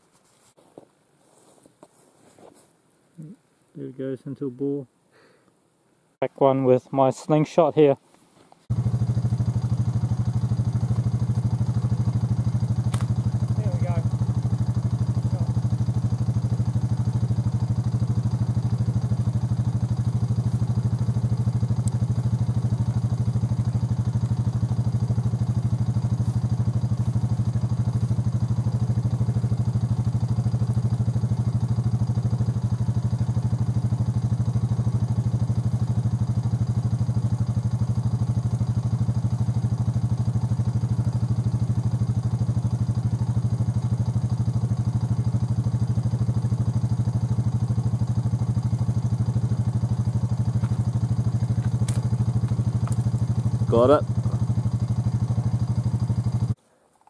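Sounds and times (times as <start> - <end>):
engine idling: 8.6 - 56.6.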